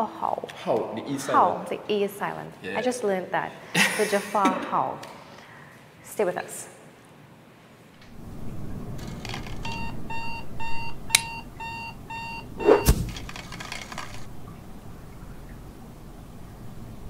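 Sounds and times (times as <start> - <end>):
alarm clock beeping: 9.6 - 13.0
thump: 12.7 - 13.2.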